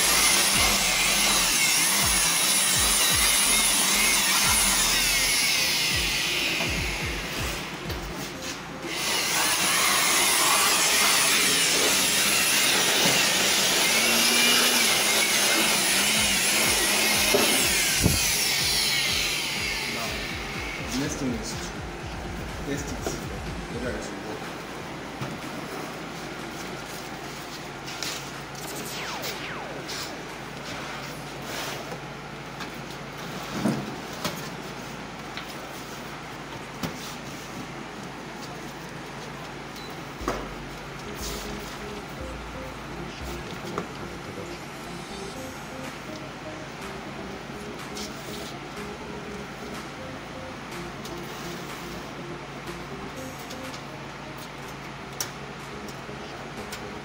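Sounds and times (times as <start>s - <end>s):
electric blower running: 0.0s - 8.1s, 8.8s - 23.7s
low background hum: 19.4s - 57.0s.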